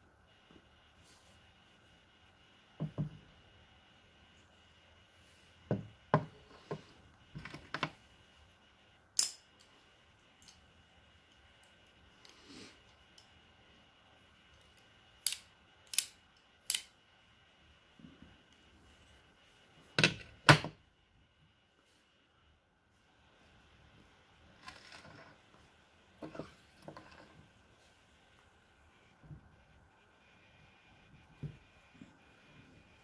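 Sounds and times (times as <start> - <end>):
cigar cutter clicking: 15.2 - 16.9.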